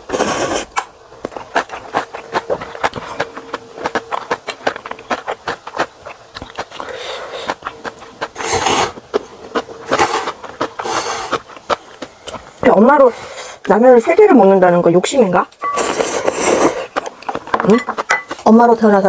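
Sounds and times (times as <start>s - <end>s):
slurping noodles: 0.0s - 3.2s, 6.5s - 12.4s, 15.8s - 17.1s
chewing with wet clicks: 0.8s - 13.0s, 15.6s - 18.4s.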